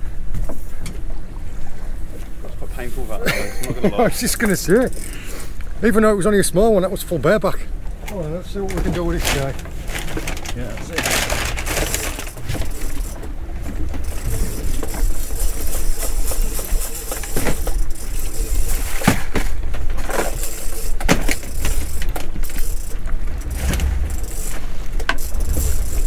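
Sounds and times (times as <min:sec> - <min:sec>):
water moving around boat: 0:00.0 - 0:26.0
wind buffeting microphone: 0:22.9 - 0:26.0.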